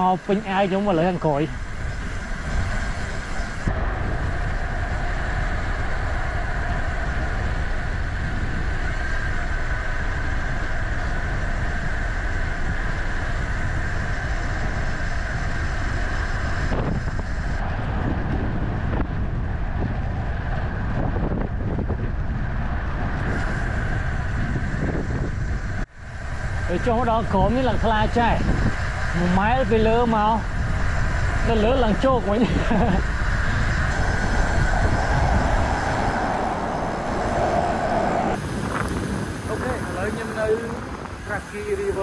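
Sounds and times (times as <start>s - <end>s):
road noise: 0.0s - 42.0s
wind on microphone: 0.0s - 42.0s.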